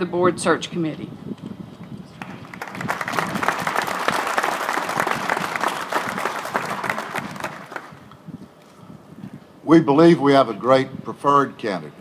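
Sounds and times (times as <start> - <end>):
audience applauding: 2.2 - 8.0.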